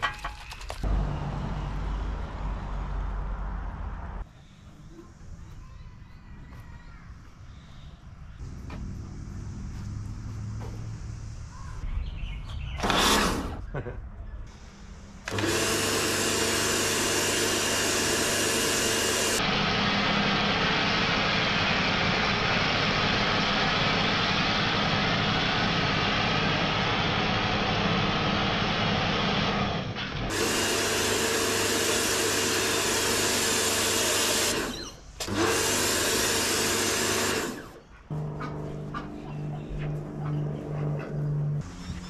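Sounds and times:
pressure washer motor whine: 0:15.2 - 0:42.0.

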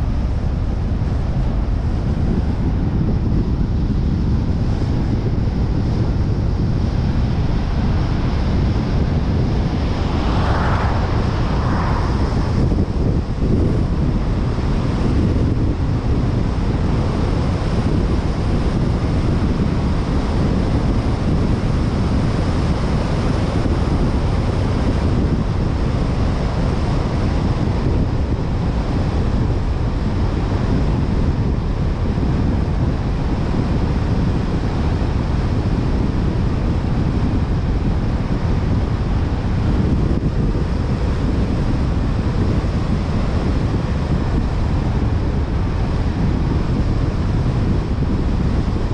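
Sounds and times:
tyres rumbling on asphalt: 0:00.0 - 0:48.9
wind buffeting microphone: 0:00.0 - 0:48.9.

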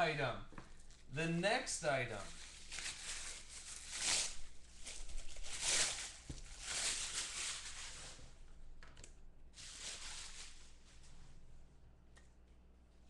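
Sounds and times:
bubble wrap rustling and crinkling: 0:02.1 - 0:08.6, 0:09.6 - 0:11.2.

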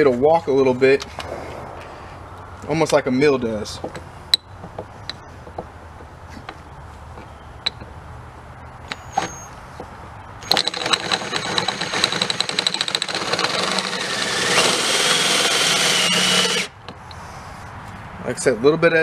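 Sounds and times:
cordless drill boring into metal: 0:10.4 - 0:16.8.

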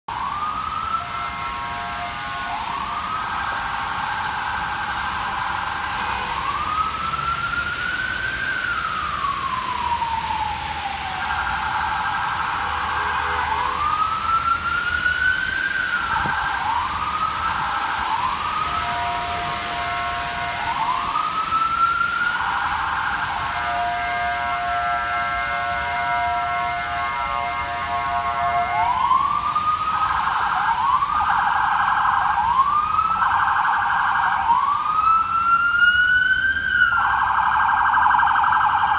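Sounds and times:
emergency vehicle siren wailing: 0:00.0 - 0:38.9
street hum: 0:00.1 - 0:38.9
vehicle horn blasts: 0:01.1 - 0:02.5, 0:23.6 - 0:28.9.

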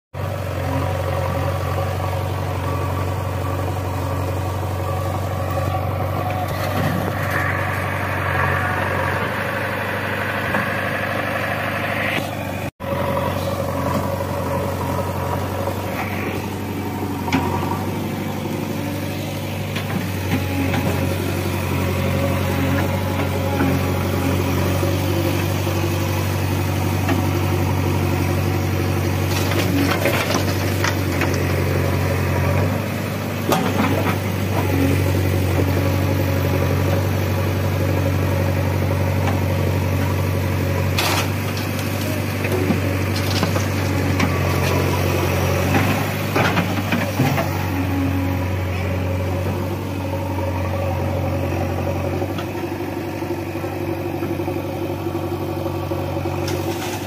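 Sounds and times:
diesel engine running: 0:00.1 - 0:57.0.

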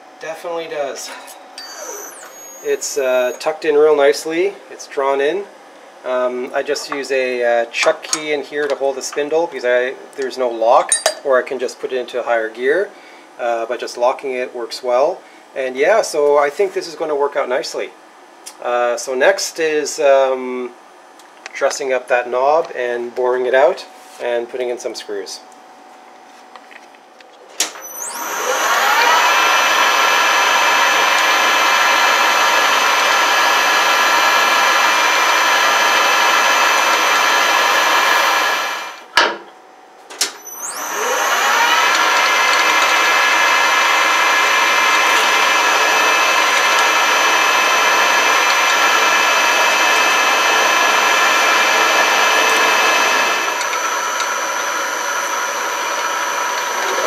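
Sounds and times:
metal lathe running: 0:01.6 - 0:03.4, 0:27.8 - 0:39.0, 0:40.4 - 0:57.0.

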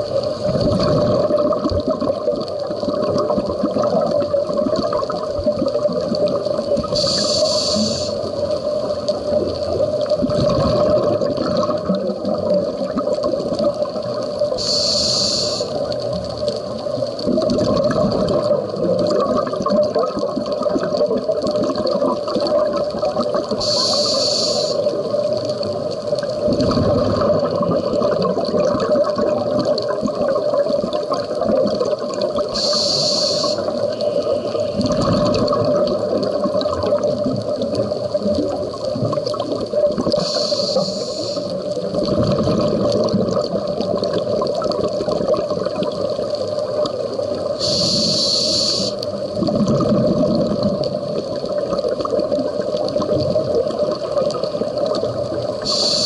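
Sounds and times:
exhaled bubbles rushing: 0:00.0 - 0:14.9, 0:15.7 - 0:56.0
regulator hissing inhale: 0:06.9 - 0:08.3, 0:14.6 - 0:15.8, 0:23.6 - 0:25.0, 0:32.5 - 0:35.0, 0:40.2 - 0:41.6, 0:47.6 - 0:49.1, 0:55.6 - 0:56.0.

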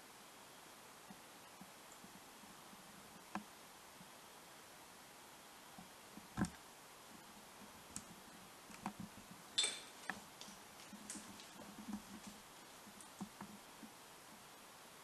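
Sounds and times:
small clicks and taps: 0:05.8 - 0:06.6, 0:07.9 - 0:14.0.

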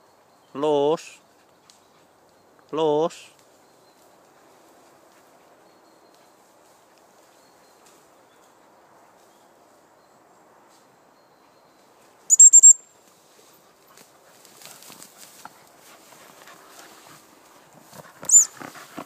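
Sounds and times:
shrill whistle pips: 0:12.3 - 0:12.8, 0:18.3 - 0:18.5.

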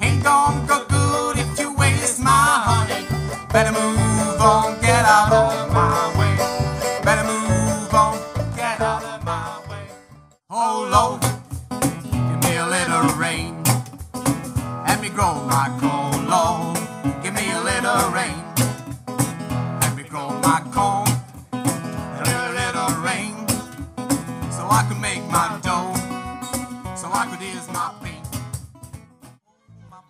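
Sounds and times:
acoustic guitar melody: 0:00.0 - 0:29.4
cajon strokes: 0:11.1 - 0:29.4.

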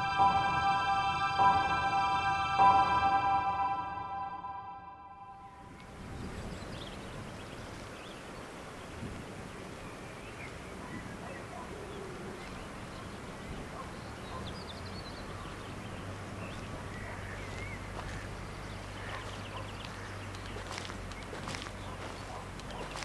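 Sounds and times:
low hum: 0:00.0 - 0:06.1
footsteps through tall grass: 0:16.5 - 0:23.0.

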